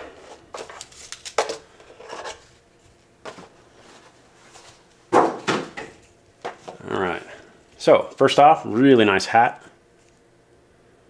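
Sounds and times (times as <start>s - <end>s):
plastic packaging rustling: 0.0s - 4.9s.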